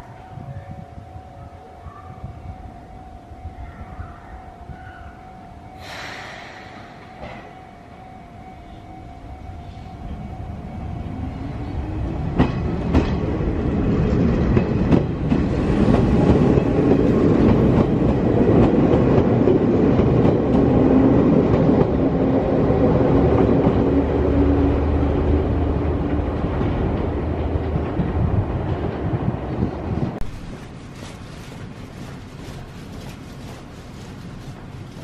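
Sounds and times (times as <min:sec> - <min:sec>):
electric train passing: 0:00.0 - 0:30.2
wheels clacking over rail joints: 0:12.2 - 0:22.2.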